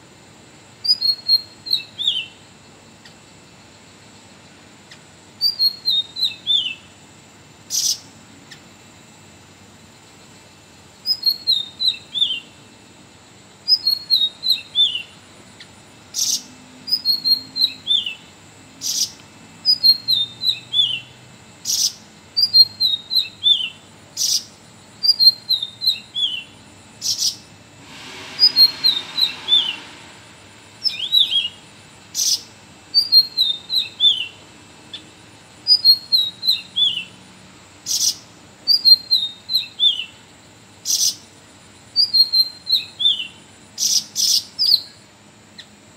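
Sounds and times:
brief hiss: 27.0s - 32.4s
bird singing short descending phrase: 28.0s - 34.4s.

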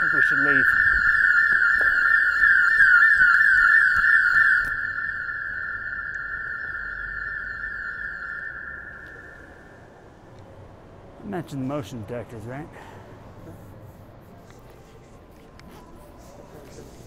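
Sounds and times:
warbling security alarm: 0.0s - 10.1s.

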